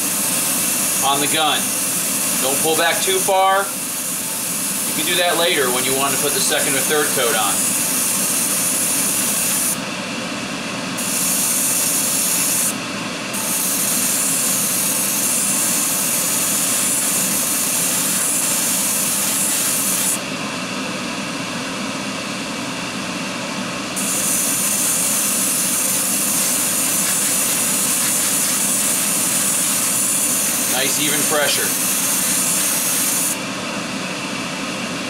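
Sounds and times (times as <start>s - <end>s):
airbrush hissing: 4.0s - 5.1s, 11.0s - 12.7s, 13.4s - 20.2s, 24.0s - 33.4s.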